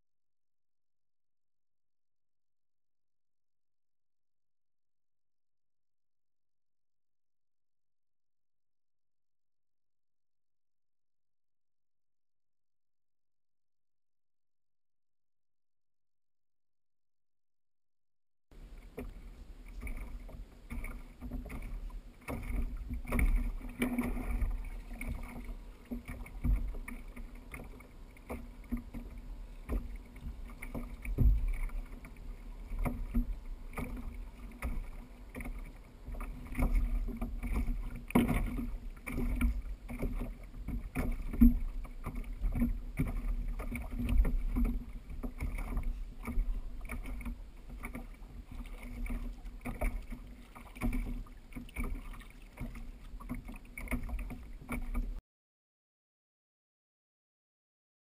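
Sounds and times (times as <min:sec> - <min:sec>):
knocks and thumps in kayak: 0:18.5 - 0:55.2
water lapping against hull: 0:18.5 - 0:55.2.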